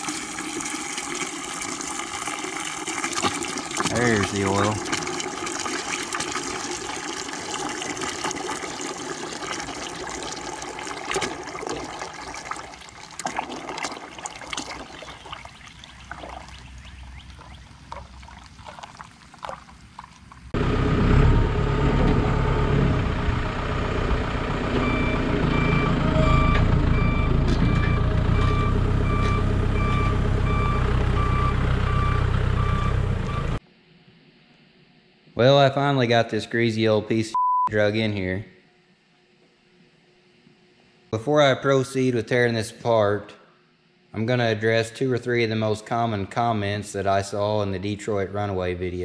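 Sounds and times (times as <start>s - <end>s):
oil pouring and dripping: 0.0s - 20.6s
diesel engine running: 20.6s - 33.6s
reversing beeper: 24.7s - 33.6s.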